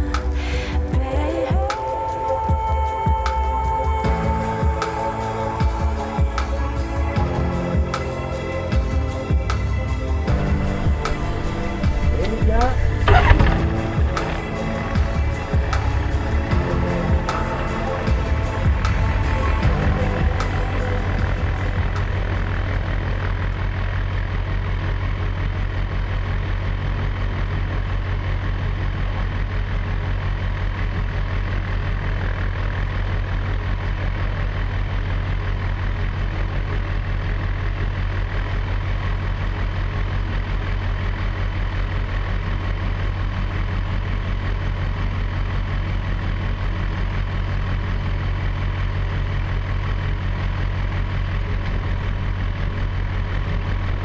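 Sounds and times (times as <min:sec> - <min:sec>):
aircraft engine drone: 0:00.0 - 0:30.1.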